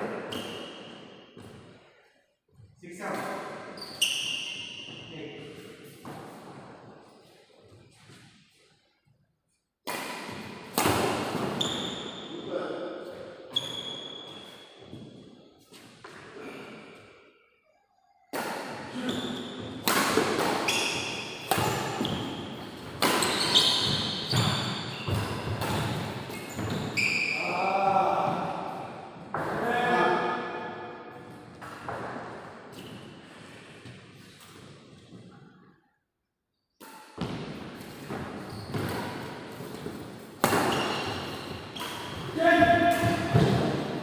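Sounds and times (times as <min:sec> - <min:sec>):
shoe squeaks on court: 0:03.8 - 0:05.1, 0:11.6 - 0:12.4, 0:13.5 - 0:14.9, 0:20.6 - 0:21.4, 0:23.1 - 0:27.4, 0:38.4 - 0:39.2, 0:40.6 - 0:42.3
rackets hitting shuttlecock: 0:09.8 - 0:12.1, 0:18.3 - 0:27.1, 0:36.8 - 0:44.0.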